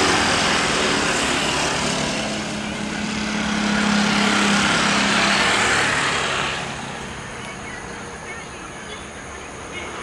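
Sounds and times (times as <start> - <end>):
jet engines roaring: 0.0 - 8.2.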